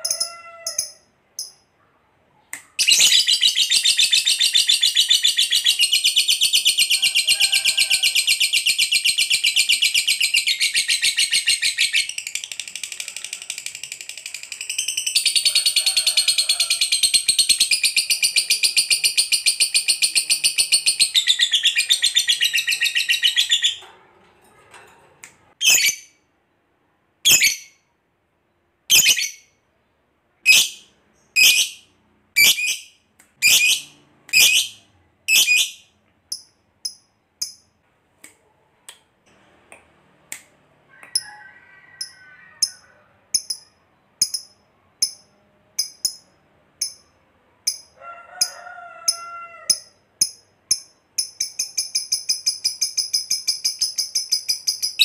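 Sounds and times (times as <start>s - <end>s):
high bird chirps: 2.7s - 7.0s, 16.9s - 23.8s, 25.6s - 26.2s, 27.3s - 27.8s, 28.9s - 29.6s, 30.5s - 37.7s.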